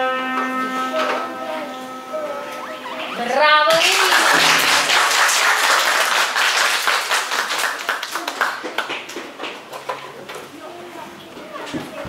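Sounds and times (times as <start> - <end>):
audience applauding: 3.7 - 9.7.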